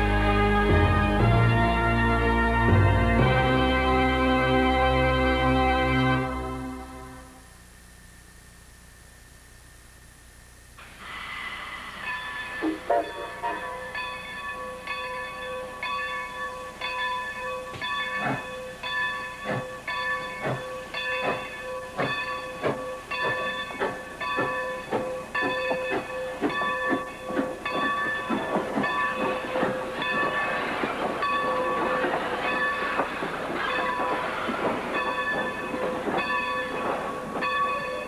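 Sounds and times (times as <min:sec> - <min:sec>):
hiss of steam: 0:10.8 - 0:14.5, 0:17.8 - 0:37.5
steam engine exhaust chuffs: 0:10.8 - 0:14.5, 0:18.0 - 0:38.0
locomotive bell ringing: 0:11.8 - 0:38.0.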